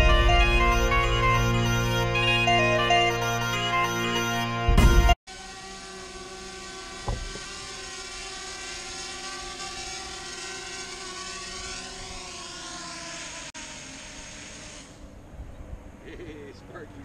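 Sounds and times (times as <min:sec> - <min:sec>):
drone propellers whining: 0:00.0 - 0:17.0
thump: 0:07.0 - 0:07.5.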